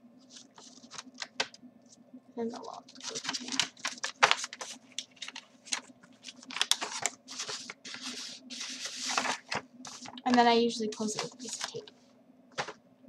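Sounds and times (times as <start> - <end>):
paper rustling: 0.2 - 12.8.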